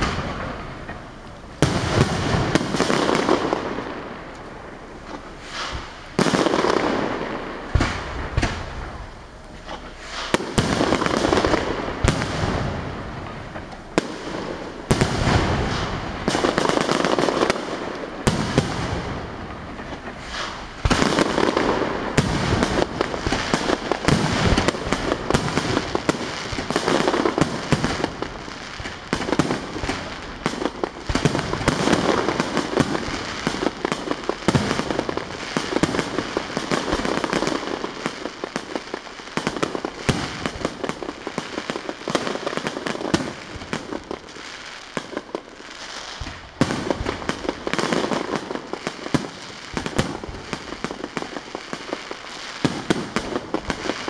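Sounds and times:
fireworks bursting: 0.0s - 54.0s.

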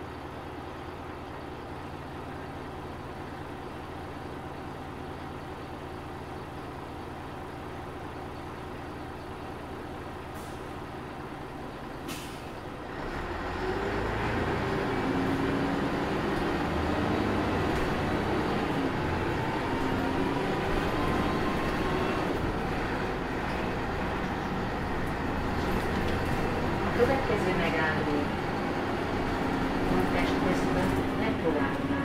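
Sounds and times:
diesel bus engine: 0.0s - 32.0s
air brake hiss: 12.1s - 12.6s.

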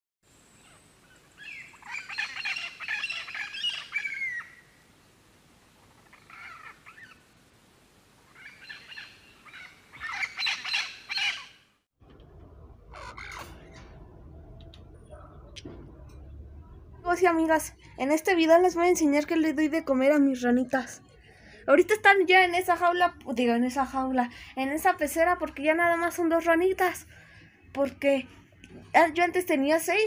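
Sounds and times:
parrots squawking and screeching: 8.4s - 11.5s, 12.8s - 14.0s.

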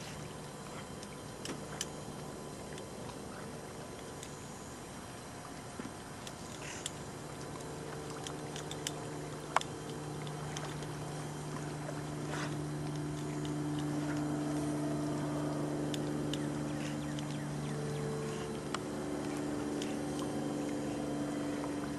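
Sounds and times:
motor droning: 0.0s - 21.9s.

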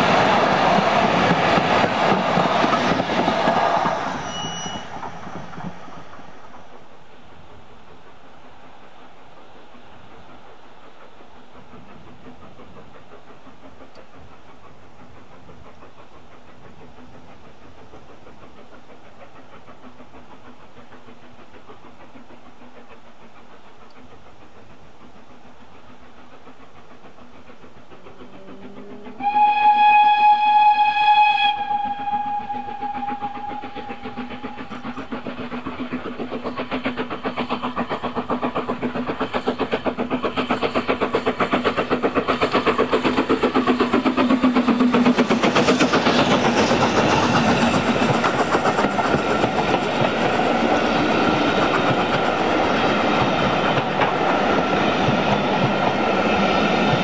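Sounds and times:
steam locomotive whistle: 2.7s - 5.8s, 28.3s - 34.8s
locomotive exhaust beats: 10.3s - 56.1s.

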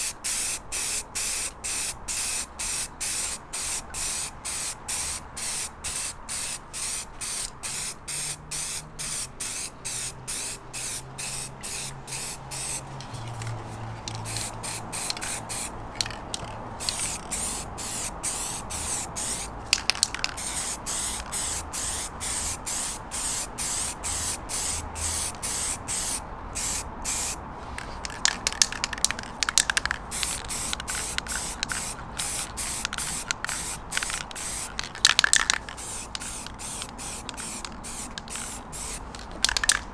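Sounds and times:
spray paint can hissing: 0.0s - 39.9s
sharp clicking: 27.9s - 38.5s, 39.2s - 39.9s.

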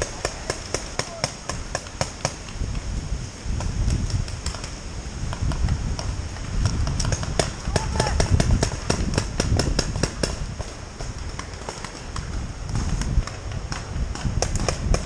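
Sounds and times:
paintball markers firing: 0.0s - 2.6s, 6.6s - 15.0s.

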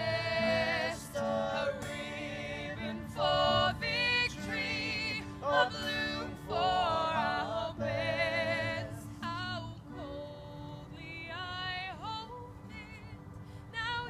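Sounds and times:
woman singing: 3.1s - 14.0s.

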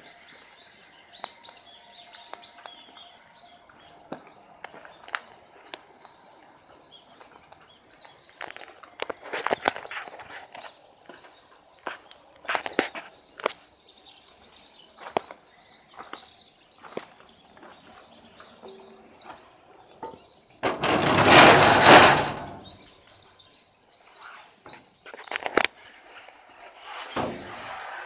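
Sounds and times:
birds chirping faintly: 0.0s - 28.0s
knocks and clicks: 20.6s - 22.7s
railway car door scraping open: 20.6s - 22.8s, 26.9s - 28.0s.

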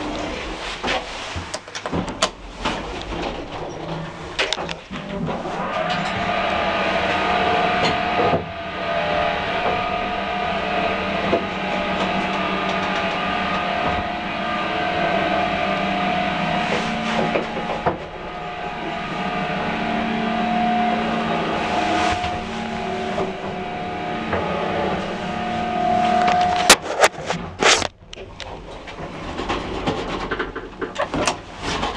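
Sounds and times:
lift machinery whine and rumble: 0.0s - 31.9s.

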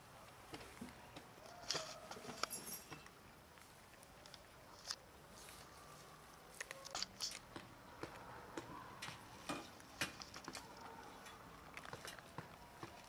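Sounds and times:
cats chewing and lapping: 0.0s - 13.0s.

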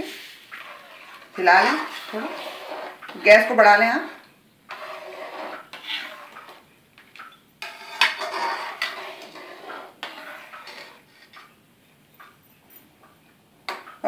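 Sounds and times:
metal ladle scraping a metal pan: 0.0s - 3.7s, 4.7s - 11.6s.

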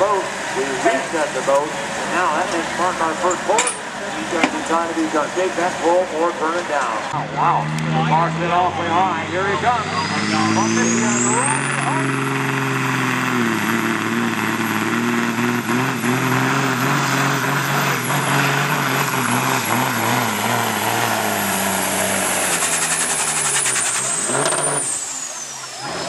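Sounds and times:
diesel truck engine at full throttle: 0.0s - 26.0s
turbo whine: 7.4s - 26.0s.

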